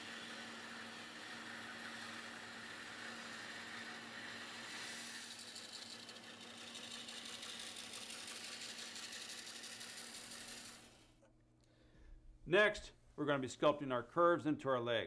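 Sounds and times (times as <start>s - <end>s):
saw blade rasping through wood: 0.0s - 11.0s
bandsaw motor hum: 0.0s - 11.2s.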